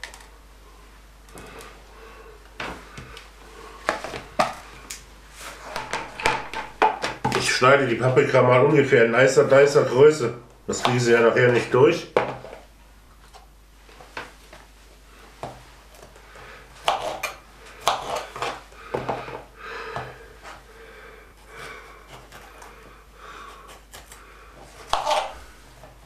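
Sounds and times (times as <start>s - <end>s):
knife cutting on plastic board: 16.8s - 18.6s, 24.8s - 25.4s.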